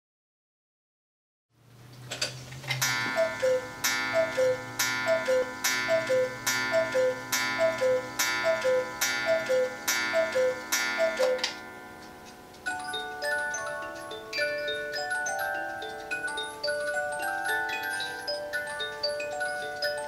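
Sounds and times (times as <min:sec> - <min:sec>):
cuckoo clock calling: 0:02.8 - 0:20.0.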